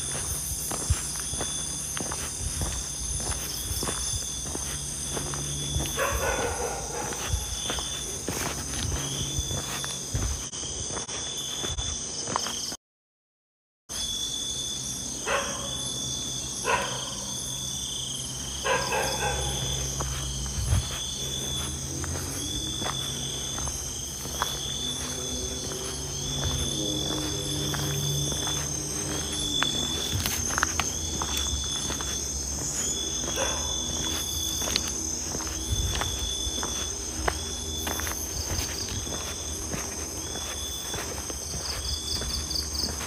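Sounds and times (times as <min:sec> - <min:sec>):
footsteps on dirt: 0:00.0 - 0:12.8, 0:18.2 - 0:43.0
insect chirp pulsing: 0:00.0 - 0:12.8, 0:13.9 - 0:43.0
insects trilling: 0:00.0 - 0:12.8, 0:13.9 - 0:43.0.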